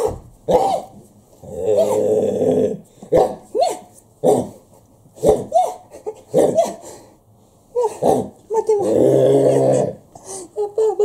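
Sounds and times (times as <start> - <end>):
man yipping and barking: 0.0 - 1.0, 3.1 - 4.5, 5.2 - 6.8
man growling like a dog: 1.4 - 2.8, 7.9 - 10.0.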